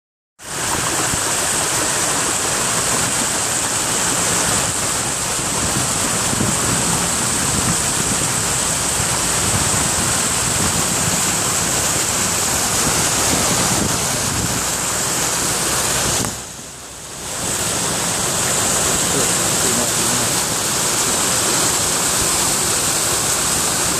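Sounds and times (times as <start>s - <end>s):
vehicle driving through floodwater: 0.4s - 23.9s.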